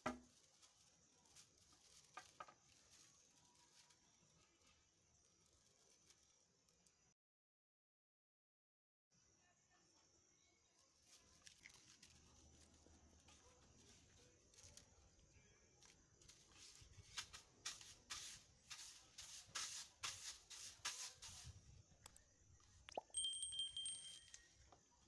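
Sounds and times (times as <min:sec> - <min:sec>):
broom sweeping concrete floor: 0:16.2 - 0:21.8.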